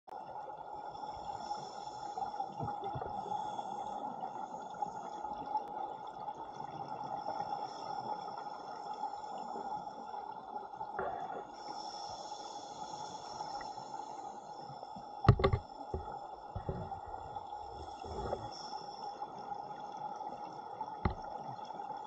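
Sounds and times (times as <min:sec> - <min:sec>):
muffled underwater hiss: 0:00.3 - 0:22.0
low thumps: 0:15.3 - 0:17.2.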